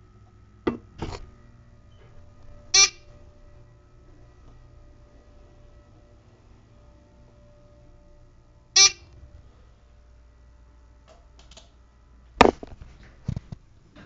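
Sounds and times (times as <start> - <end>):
elevator electronic tone: 1.8 - 9.5.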